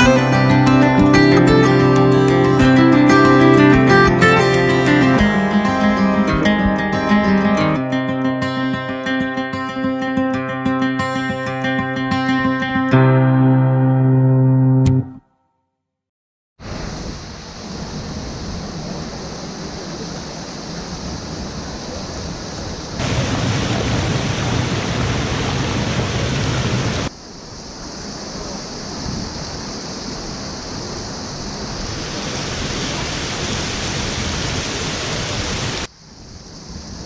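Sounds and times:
waterfall rushing over rock: 16.6 - 27.1, 31.4 - 35.9.

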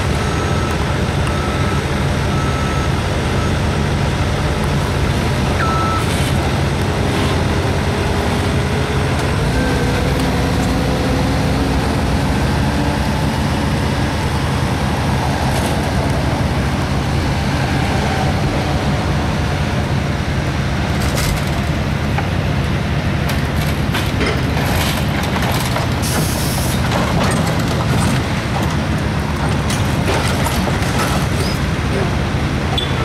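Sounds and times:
diesel machinery humming: 0.0 - 33.0
metal clanks and cracks: 23.3 - 31.6.

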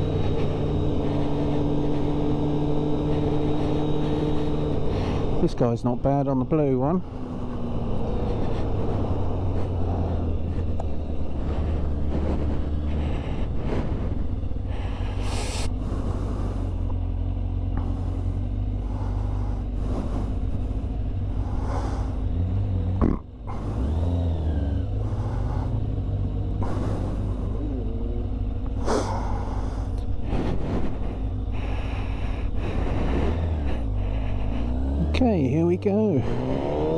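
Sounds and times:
motorcycle engine running: 0.0 - 36.9
wind rumble on microphone: 7.1 - 16.9, 28.7 - 34.7.

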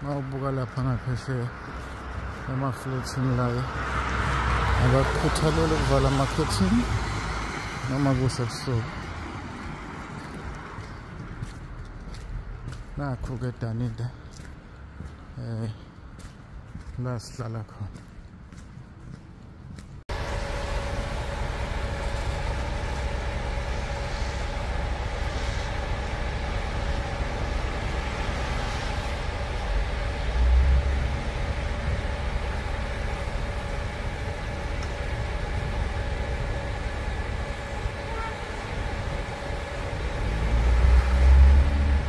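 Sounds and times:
passing street traffic: 0.0 - 42.0
low rumble: 19.7 - 42.0
bus engine idling: 20.0 - 42.0.

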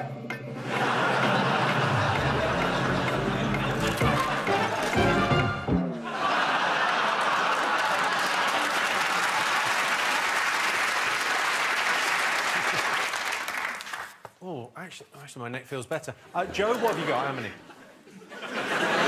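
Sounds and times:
game show clock music: 0.0 - 6.0
audience applauding: 0.8 - 14.3.

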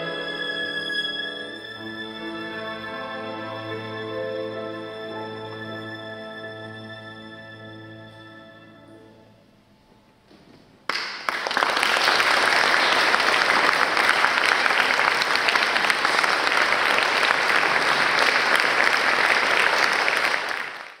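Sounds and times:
audience applause: 10.9 - 21.0.

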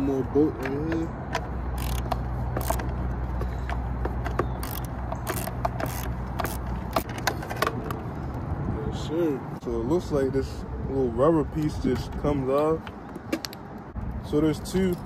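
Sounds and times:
hand tools clicking and clinking: 0.6 - 8.0.

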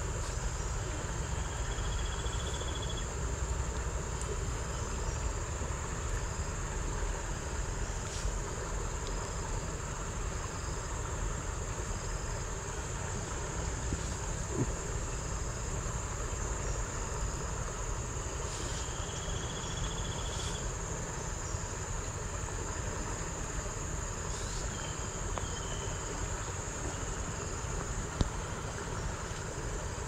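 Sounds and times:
insects droning: 0.0 - 30.0
low rumbling background noise: 0.0 - 30.0
buzzy insect trill: 0.2 - 3.7, 9.3 - 21.7.

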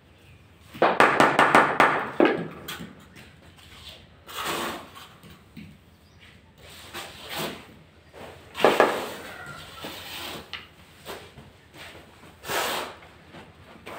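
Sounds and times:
scrapes on tiles: 3.6 - 5.4, 6.2 - 11.4, 12.4 - 13.1.

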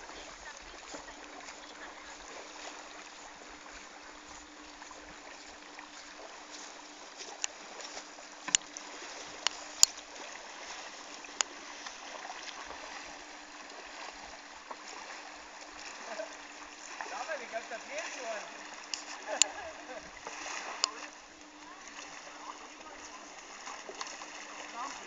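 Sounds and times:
calm lake water washing: 0.0 - 25.0.

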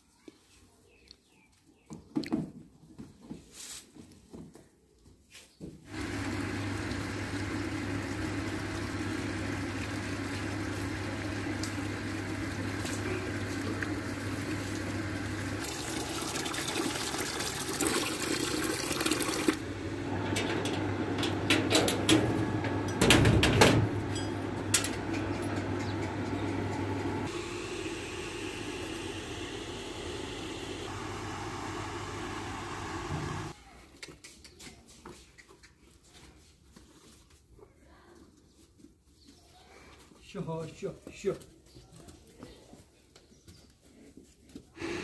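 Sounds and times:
electric pump humming: 5.9 - 33.6, 44.8 - 45.0
water pouring into metal tub: 15.6 - 19.6.

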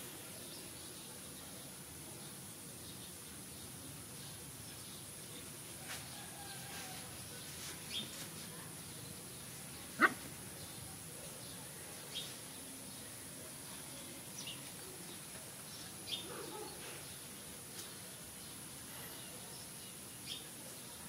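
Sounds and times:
puppy yipping: 10.0 - 10.2.

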